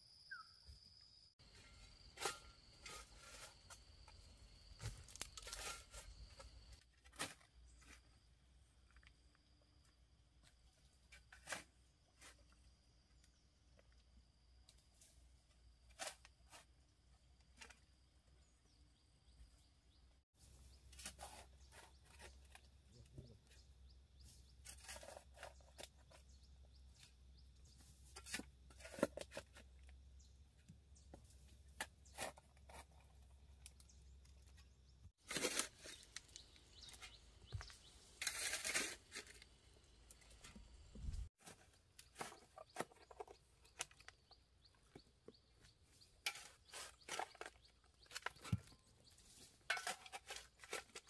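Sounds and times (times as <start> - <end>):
faint crunching and scraping strokes: 1.4 - 8.2, 20.4 - 23.6, 35.2 - 44.3.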